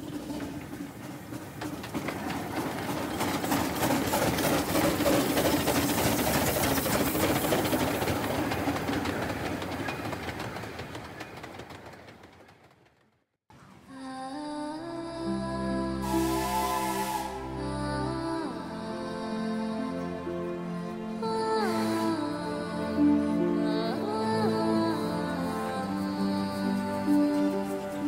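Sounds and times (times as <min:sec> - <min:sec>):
steam locomotive chuffing: 0:00.0 - 0:13.2, 0:16.0 - 0:17.5
wheels clattering on rails: 0:00.0 - 0:13.2, 0:23.7 - 0:28.0
steam hissing: 0:16.0 - 0:17.5.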